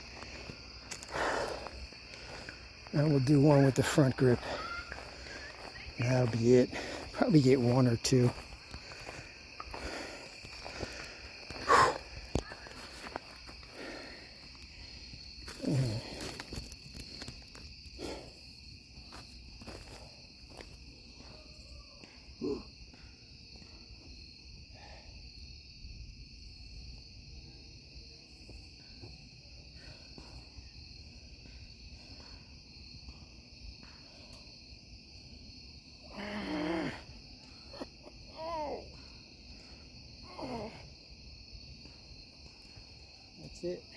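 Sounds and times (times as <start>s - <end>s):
insects chirring: 0.0s - 43.9s
man grunting with effort: 36.1s - 37.0s.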